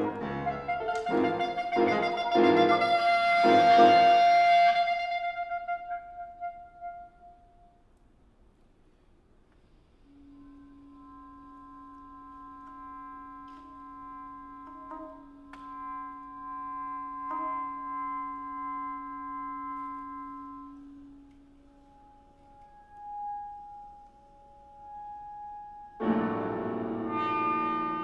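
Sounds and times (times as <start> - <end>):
chamber ensemble playing slow music: 0.0 - 5.0, 10.0 - 28.0.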